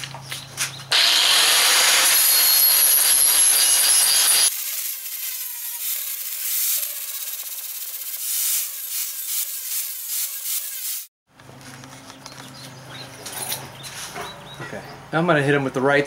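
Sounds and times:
angle grinder grinding metal: 0.9 - 11.1.

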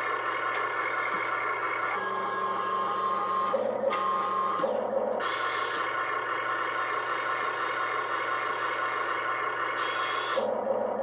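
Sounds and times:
toy excavator motor whine: 0.0 - 11.0.

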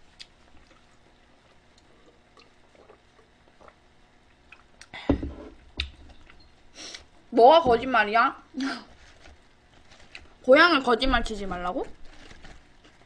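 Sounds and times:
person gulping: 1.7 - 3.9.

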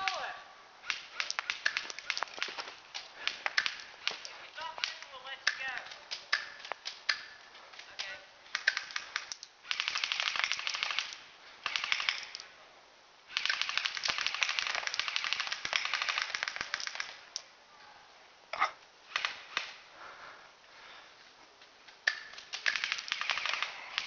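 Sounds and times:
airsoft gun firing bursts: 0.9 - 12.5, 13.3 - 17.2, 19.1 - 19.8, 22.1 - 24.0.

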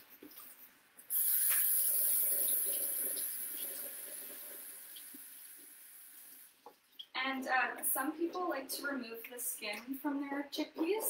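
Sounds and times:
water running into sink: 1.1 - 7.1.

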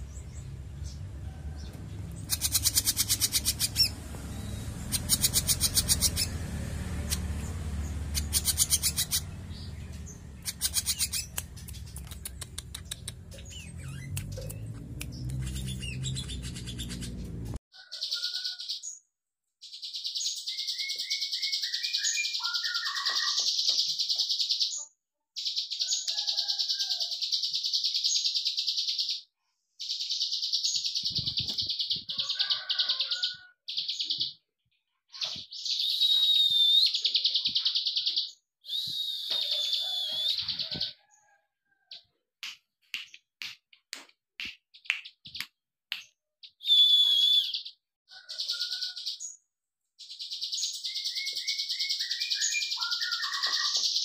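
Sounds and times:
bird rapid clicking song: 2.1 - 6.4, 7.0 - 17.6, 20.7 - 24.7, 25.4 - 29.1, 29.9 - 34.4, 42.4 - 47.7, 50.1 - 54.0
bird calling: 8.1 - 9.7, 38.7 - 41.1, 46.6 - 49.0.

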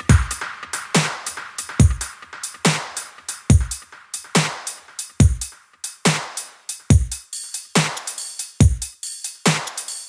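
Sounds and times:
heavy kick drum: 0.0 - 0.4, 1.0 - 2.9, 3.5 - 4.5, 5.2 - 5.5, 6.9 - 7.2, 8.6 - 8.9
electronic music with drum machine beat: 0.0 - 10.0.

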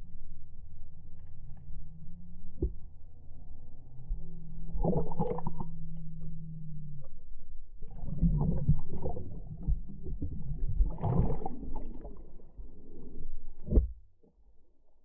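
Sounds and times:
water sloshing and churning: 4.7 - 5.9, 7.8 - 14.0.

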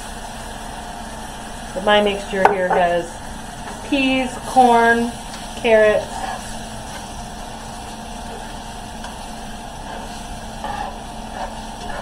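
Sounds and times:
gravy hissing in skillet: 0.0 - 12.0.

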